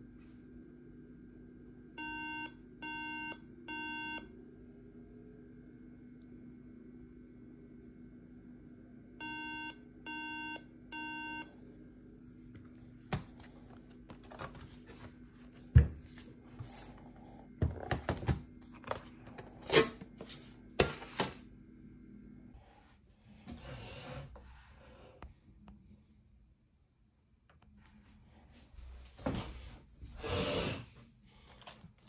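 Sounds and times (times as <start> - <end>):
steady low hum: 0.0 - 32.0
laptop beeps: 2.0 - 4.3, 9.2 - 11.5.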